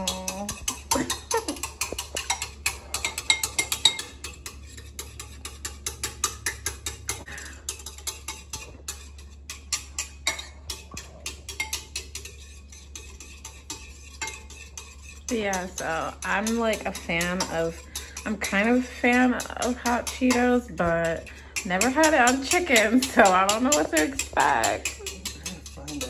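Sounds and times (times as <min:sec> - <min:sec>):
wooden utensil clicking against bowl: 0:00.0 - 0:04.5, 0:13.1 - 0:26.0.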